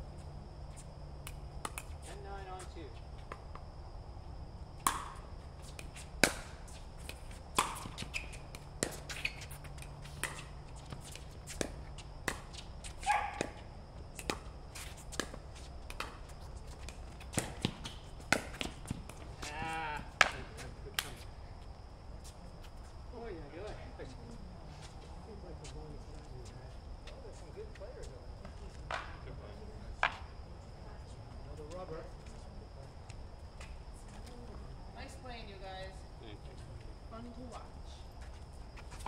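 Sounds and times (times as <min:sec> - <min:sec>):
ball bouncing on court: 0:04.8 - 0:20.4
paddles striking ball: 0:06.2 - 0:08.2.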